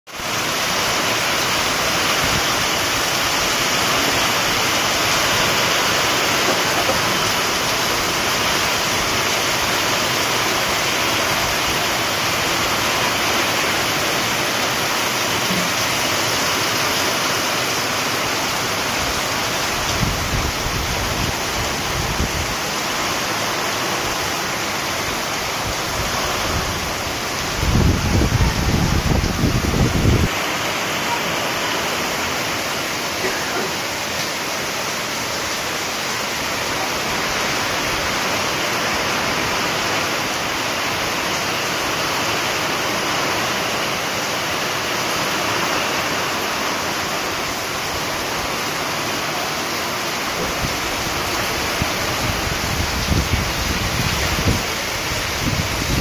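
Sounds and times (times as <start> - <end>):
heavy rain falling: 0.1 - 56.0
wind buffeting microphone: 19.7 - 22.6, 25.5 - 30.3, 50.4 - 56.0.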